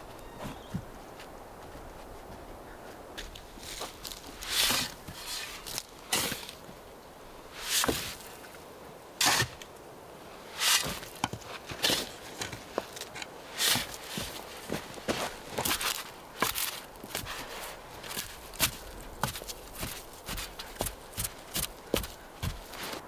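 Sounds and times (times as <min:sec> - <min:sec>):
metal blade scraping sandy soil: 0:03.6 - 0:06.6, 0:07.5 - 0:08.4, 0:09.2 - 0:09.7, 0:10.4 - 0:14.5.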